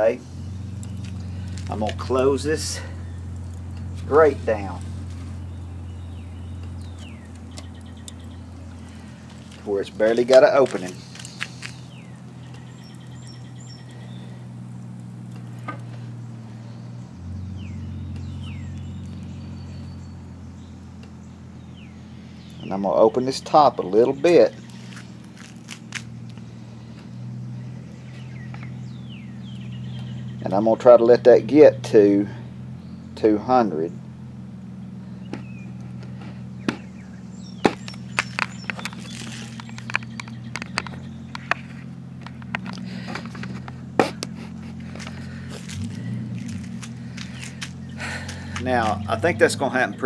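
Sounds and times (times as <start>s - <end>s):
low machine hum: 0.0s - 50.0s
faint bird chirps: 5.3s - 9.2s, 11.0s - 14.4s, 26.4s - 30.5s
sharp clicks and knocks: 37.6s - 45.8s.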